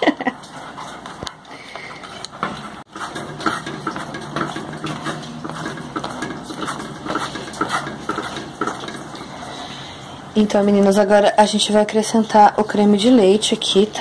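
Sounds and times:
spatula scraping saucepan: 0:01.8 - 0:10.3.

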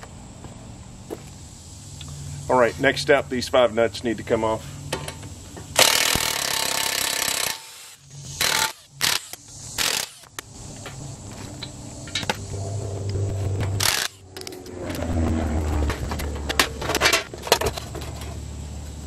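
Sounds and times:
impact wrench hammering: 0:05.8 - 0:07.8.

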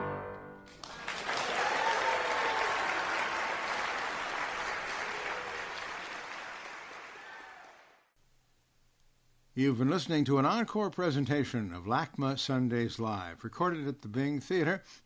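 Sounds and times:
piano notes: 0:00.0 - 0:00.7
audience applauding: 0:00.6 - 0:08.1.

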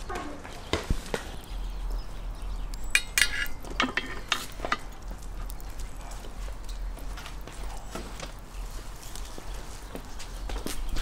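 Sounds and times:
metal skewers clinking: 0:02.9 - 0:04.9.

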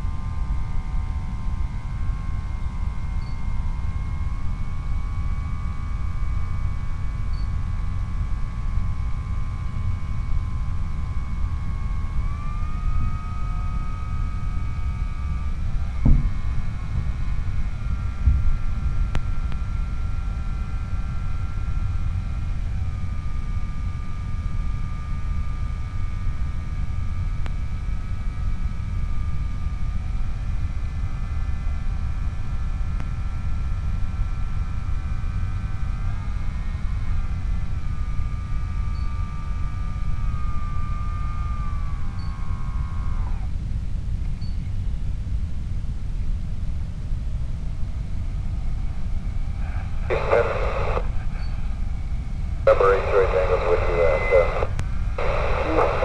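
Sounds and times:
electric motor propeller whining: 0:00.2 - 0:23.2, 0:36.1 - 0:43.6.

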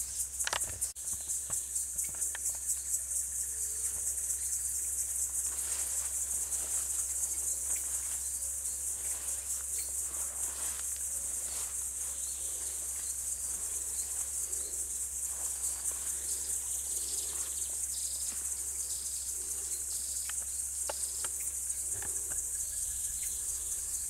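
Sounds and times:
high-pitched insect chorus: 0:00.0 - 0:24.0
faint bird chirps: 0:11.4 - 0:24.0.

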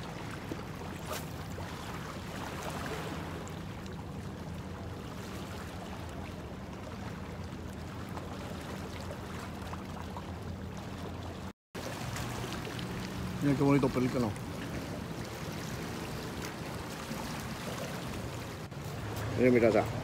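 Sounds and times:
motorboat engine drone: 0:00.0 - 0:20.0
wind: 0:00.0 - 0:20.0.

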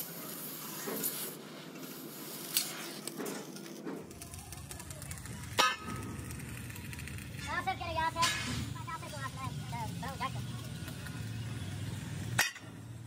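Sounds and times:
gas cutting torch hissing: 0:00.0 - 0:04.3
workshop yard noise: 0:00.0 - 0:13.0.

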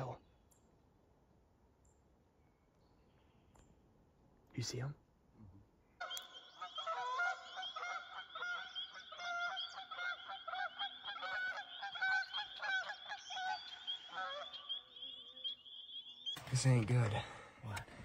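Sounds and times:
geese honking: 0:06.0 - 0:16.8.

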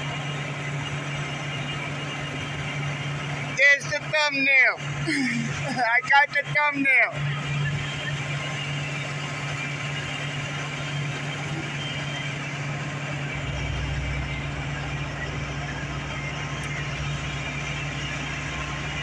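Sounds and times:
vehicle engine idling: 0:00.0 - 0:19.0
deeper rumble: 0:07.1 - 0:19.0.

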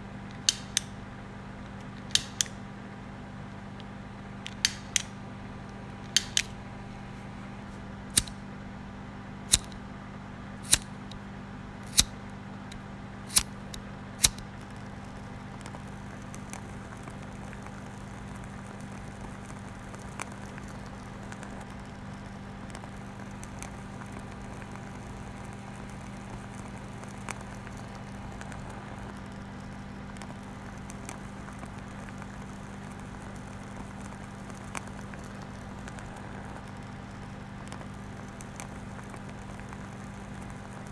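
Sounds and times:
low electrical hum: 0:00.0 - 0:40.9
sharp single clicks: 0:00.3 - 0:00.9, 0:02.0 - 0:02.6, 0:04.5 - 0:05.1, 0:11.8 - 0:14.5.

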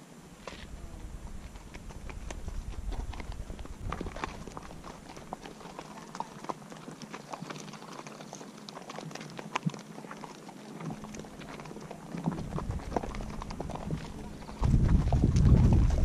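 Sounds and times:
horse hooves clip-clopping: 0:00.0 - 0:16.0.

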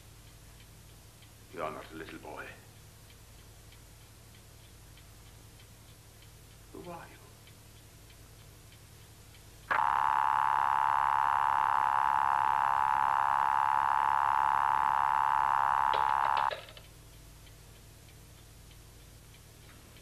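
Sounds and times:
telephone earpiece buzzing tone: 0:09.7 - 0:16.8.

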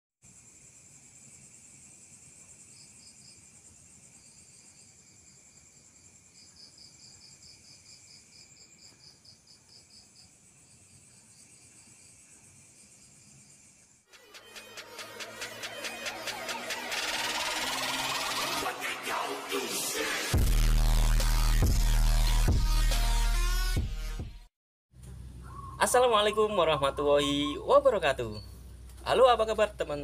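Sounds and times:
insects trilling: 0:00.3 - 0:14.0, 0:25.4 - 0:30.0.

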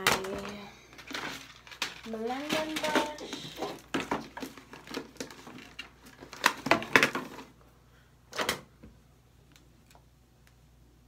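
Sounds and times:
makeup containers clattering: 0:00.0 - 0:07.5.

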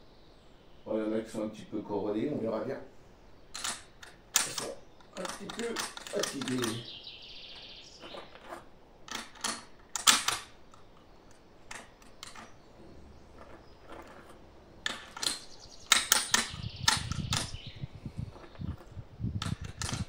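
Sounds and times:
metal cartridges clicking: 0:03.5 - 0:06.9, 0:08.0 - 0:17.7, 0:18.3 - 0:20.0
metallic rattling: 0:03.5 - 0:06.9, 0:07.9 - 0:20.0.

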